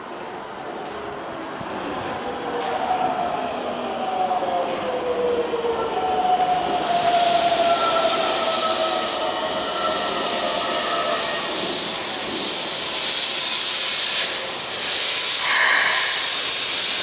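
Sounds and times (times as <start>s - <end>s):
loud steady hiss: 11.4s - 17.0s
electric train running gear whine: 15.4s - 17.0s.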